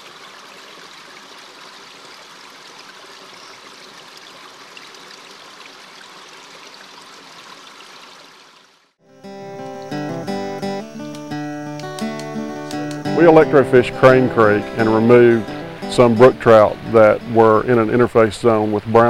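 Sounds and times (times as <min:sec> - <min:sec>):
acoustic guitar music: 0:09.0 - 0:18.6.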